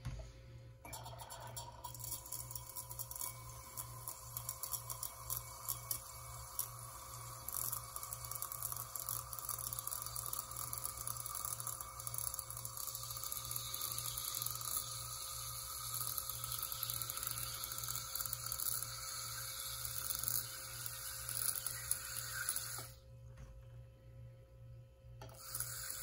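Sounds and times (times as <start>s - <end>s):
small pump whining: 0.8s - 23.0s, 25.2s - 26.0s
water hissing into glass: 13.0s - 22.9s.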